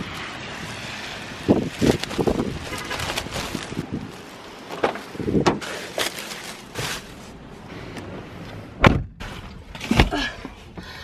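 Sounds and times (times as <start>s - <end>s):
rustling and handling noise: 1.5s - 7.6s
car door slamming: 8.8s - 9.2s.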